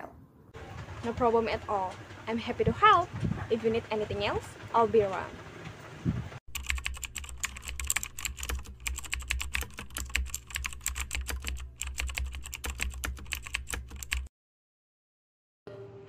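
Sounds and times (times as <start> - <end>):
computer keyboard typing: 6.5 - 14.3.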